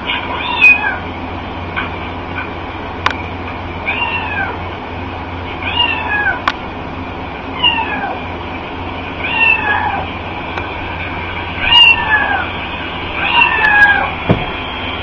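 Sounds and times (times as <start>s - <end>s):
steady low hum: 0.0s - 15.0s
cat meowing: 3.9s - 4.6s, 5.6s - 6.4s, 7.6s - 8.2s, 9.2s - 10.1s, 11.6s - 12.5s, 13.2s - 14.2s.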